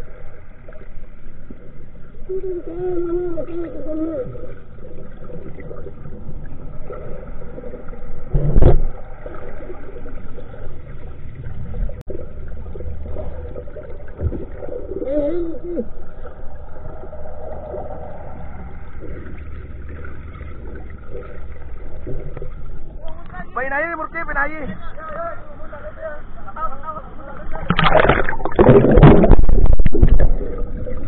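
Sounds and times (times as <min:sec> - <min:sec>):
muffled boat engine underwater: 0:00.0 - 0:31.0
loud thump: 0:08.3 - 0:08.9.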